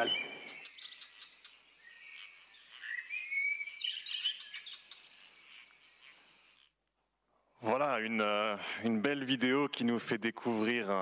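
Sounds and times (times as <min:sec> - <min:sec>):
small birds chirping: 0:00.0 - 0:07.2
high-pitched insect trill: 0:00.3 - 0:06.8.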